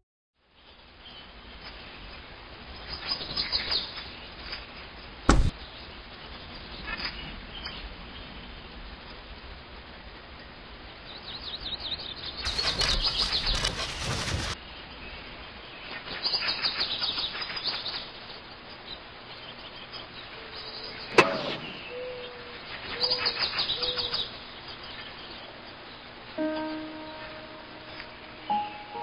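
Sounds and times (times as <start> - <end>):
bird wings flapping: 12.5 - 14.6
low coo-like calls: 20.3 - 24.3.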